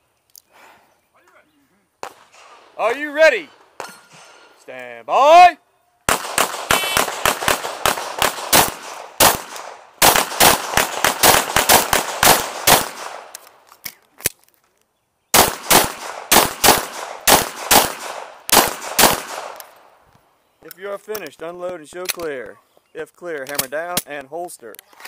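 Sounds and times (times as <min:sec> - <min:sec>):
rapid pistol shots: 0:06.1 - 0:13.4, 0:15.3 - 0:19.8.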